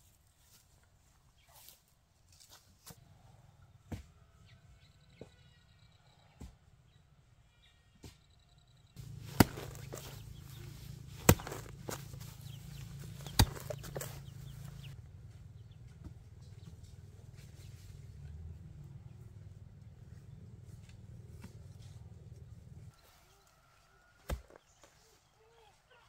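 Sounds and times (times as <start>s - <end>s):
chickens clucking: 9.4s - 15.0s.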